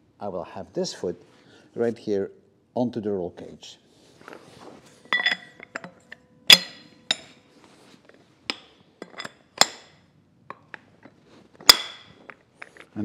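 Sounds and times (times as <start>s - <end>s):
steel tubes clinking and knocking: 5.0s - 7.4s, 8.5s - 13.0s.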